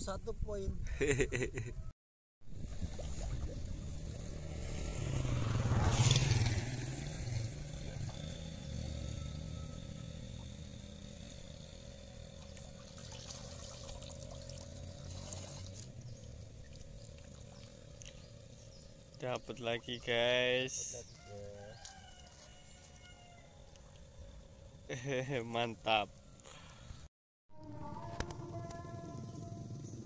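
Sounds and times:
water sloshing: 2.5 - 6.5, 12.3 - 20.2.

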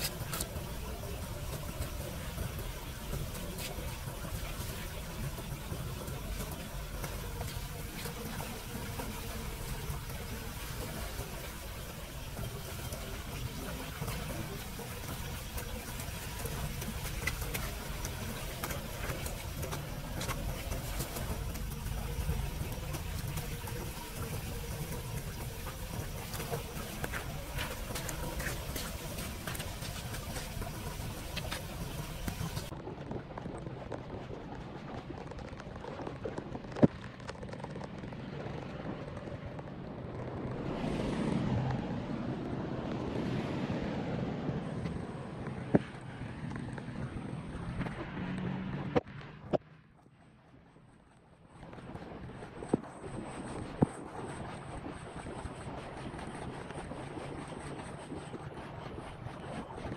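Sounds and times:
rain falling on flood water: 0.0 - 39.2
steady low rumble: 0.0 - 59.9.

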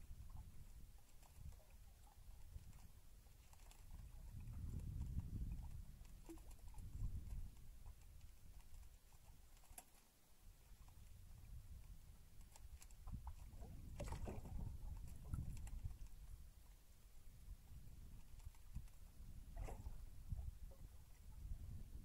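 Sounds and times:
fishing line clicks and knocks: 12.4 - 16.2.

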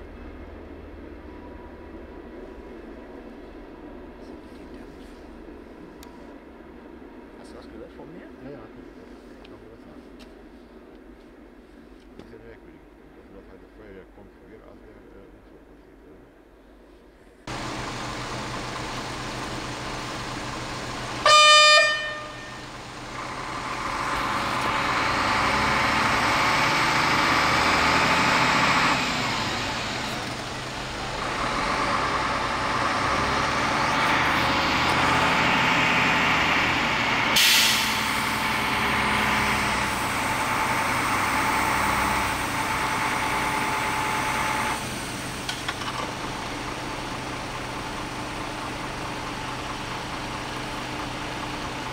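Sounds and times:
engine noise: 17.5 - 51.9
horn blast: 21.2 - 22.8.

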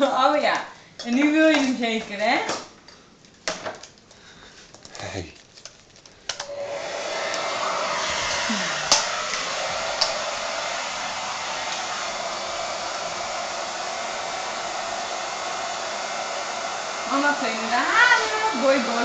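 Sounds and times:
hair dryer blowing: 6.4 - 19.0.

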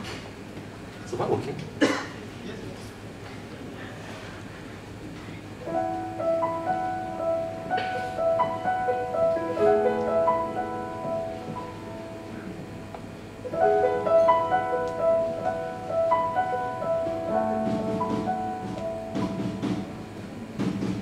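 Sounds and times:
keyboard playing piano chords: 5.6 - 21.0.

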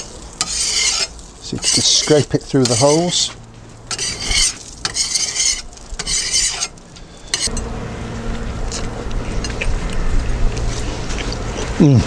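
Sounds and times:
scraper scraping hot metal plate: 0.0 - 7.6
low steady hum: 3.3 - 12.0.

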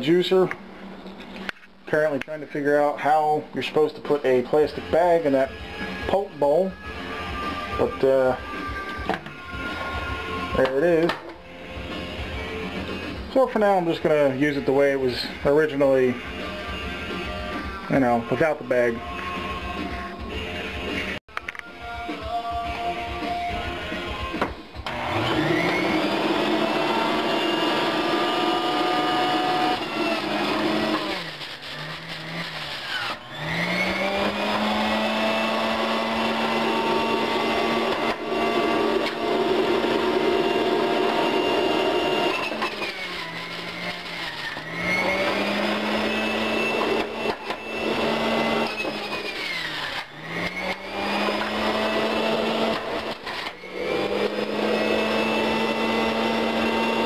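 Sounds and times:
juicer motor running: 24.8 - 57.0.

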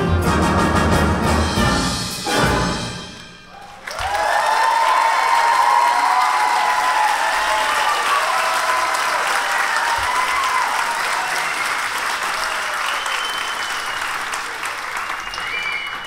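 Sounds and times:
audience applauding: 3.6 - 16.0.

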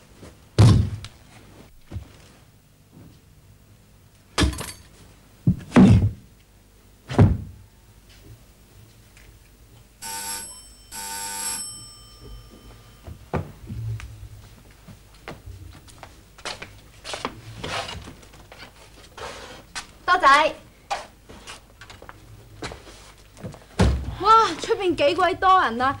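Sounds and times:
dull thuds: 7.1 - 7.6
electric bell ringing: 10.0 - 13.3.

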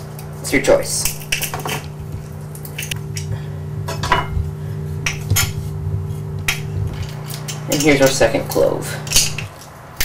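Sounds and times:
steady low hum: 0.0 - 10.0
knife scraping metal: 3.9 - 9.6.

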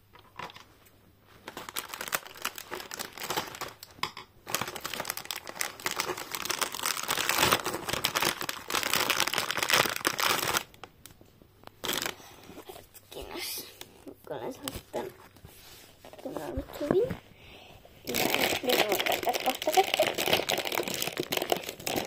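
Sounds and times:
plastic bag crinkling: 1.4 - 10.9, 11.7 - 13.0, 18.0 - 22.0.

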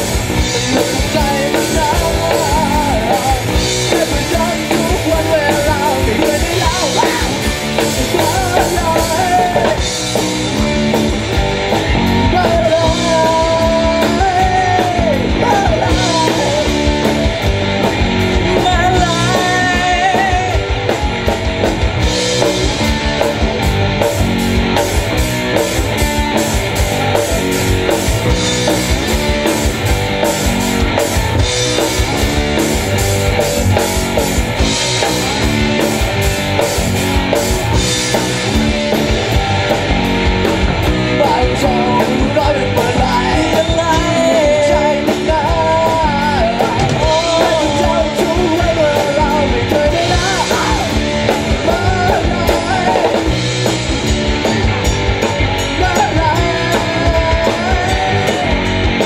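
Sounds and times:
person singing lead vocals: 0.0 - 21.4, 37.7 - 53.7, 54.3 - 59.0
rock band playing: 0.0 - 59.0.

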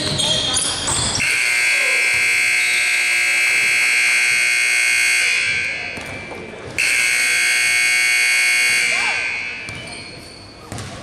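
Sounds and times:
scoreboard horn blast: 1.2 - 5.8, 6.8 - 9.6.

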